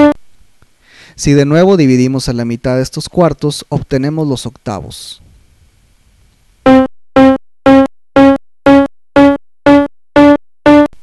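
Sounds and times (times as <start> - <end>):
synthesized keyboard notes: 6.7 - 11.0.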